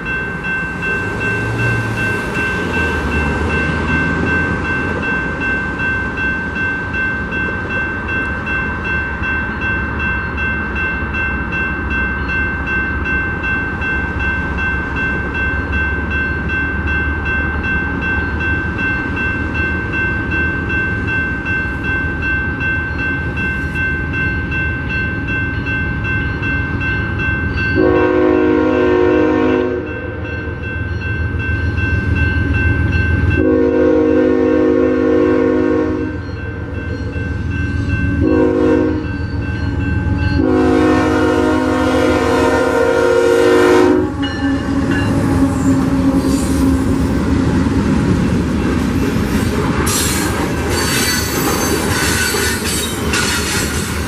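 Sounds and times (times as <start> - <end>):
freight train rumbling: 0.0 - 54.0
railroad crossing bell ringing: 0.0 - 54.0
train horn blasts: 27.8 - 30.2, 33.4 - 36.2, 38.2 - 39.1, 40.4 - 46.7.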